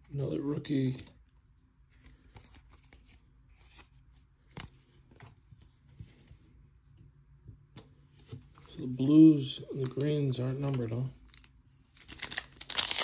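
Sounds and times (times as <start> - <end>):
cards rustling: 1.9 - 6.2, 9.4 - 13.0.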